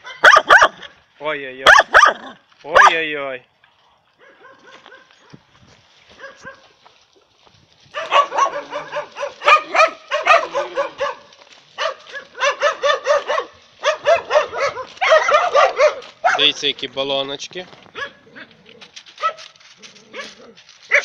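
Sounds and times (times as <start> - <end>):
dogs barking: 0.0 - 1.0, 1.7 - 3.0, 4.2 - 5.3, 6.2 - 6.6, 7.9 - 16.6, 17.9 - 18.5, 19.2 - 19.5, 20.1 - 21.0.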